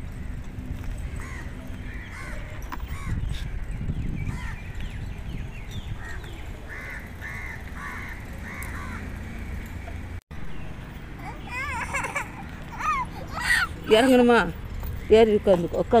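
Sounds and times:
crows cawing: 0:01.2 - 0:03.2, 0:06.7 - 0:09.1
small birds chirping: 0:01.2 - 0:16.0.

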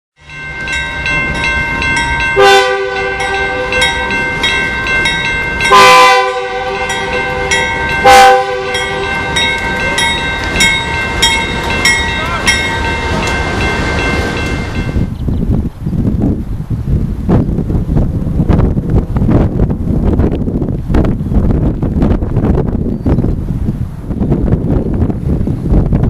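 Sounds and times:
crossing signal bell dinging: 0:00.2 - 0:15.1
low rumble of train: 0:00.2 - 0:26.0
locomotive air horn blasts: 0:02.4 - 0:04.2, 0:05.6 - 0:09.4.

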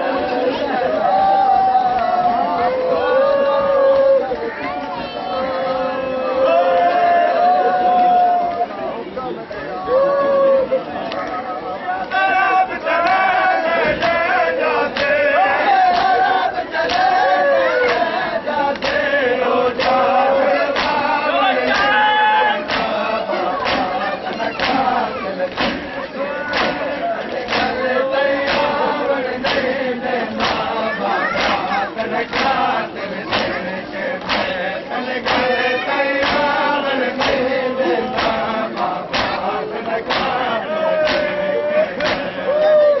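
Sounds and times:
men chanting a lament: 0:00.0 - 0:43.0
chest slaps in unison: 0:22.7 - 0:25.9, 0:26.5 - 0:27.8, 0:29.4 - 0:31.7, 0:32.3 - 0:33.6, 0:34.2 - 0:34.6, 0:35.2 - 0:35.6, 0:36.2 - 0:36.6, 0:37.2 - 0:37.5, 0:38.1 - 0:39.5, 0:40.1 - 0:40.4, 0:41.0 - 0:41.4, 0:42.0 - 0:42.4.

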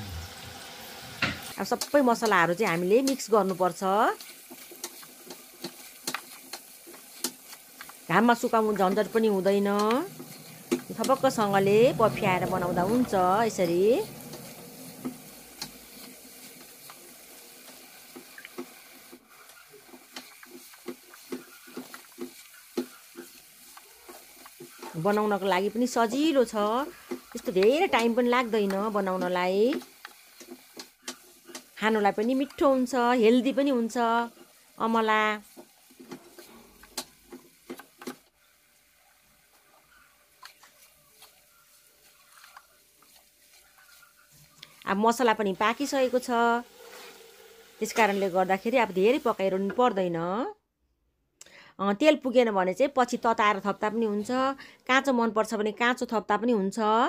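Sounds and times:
faint frying hiss: 0:00.0 - 0:50.1, 0:51.4 - 0:55.1
spatula scraping a frying pan: 0:01.4 - 0:32.8, 0:35.4 - 0:38.3, 0:39.0 - 0:44.8, 0:45.8 - 0:48.5.

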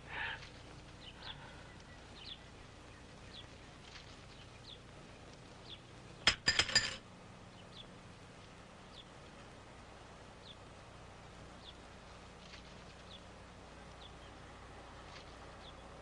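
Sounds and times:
small hard object clinking: 0:06.3 - 0:07.0.

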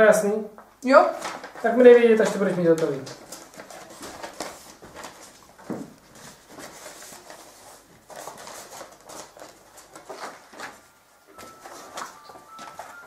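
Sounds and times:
paper rustling: 0:01.0 - 0:13.0.

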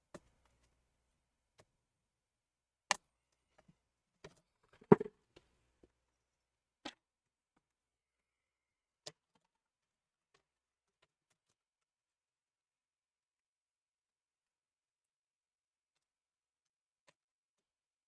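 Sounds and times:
hands handling laptop parts: 0:03.6 - 0:05.1.

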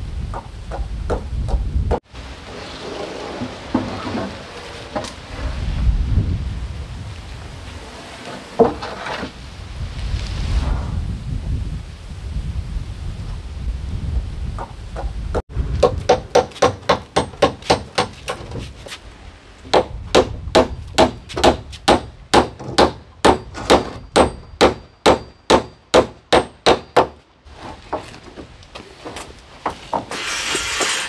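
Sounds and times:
hammer striking: 0:15.8 - 0:18.6, 0:19.7 - 0:27.2.

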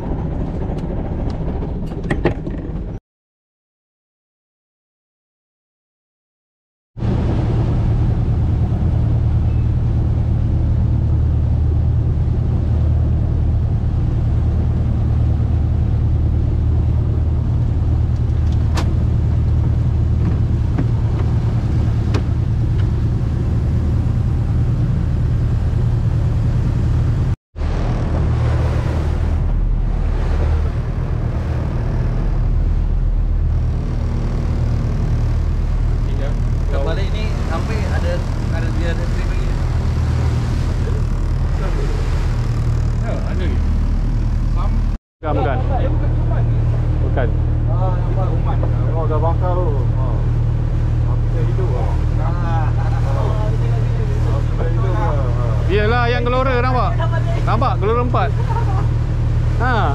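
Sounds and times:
boat engine drone: 0:00.0 - 0:03.0, 0:07.0 - 0:59.9
wind noise: 0:07.0 - 0:47.6
water noise: 0:07.0 - 0:59.9.

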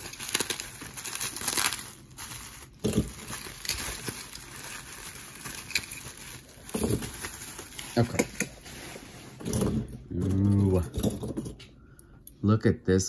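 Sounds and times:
metal brooches clinking: 0:00.0 - 0:07.8
bubble-wrap bag crinkling: 0:00.0 - 0:09.2.

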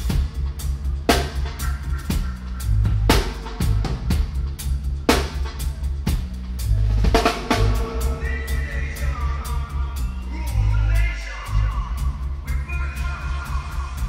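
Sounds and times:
snare and cymbal hits: 0:00.0 - 0:08.3
heavy bass line: 0:00.0 - 0:14.0
reggae band playing: 0:00.0 - 0:14.0.

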